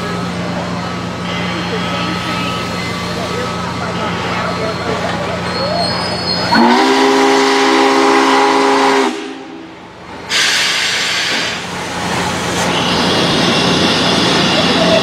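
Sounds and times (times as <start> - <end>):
steam locomotive chime whistle: 5.6 - 9.7
steam hissing: 10.2 - 15.0.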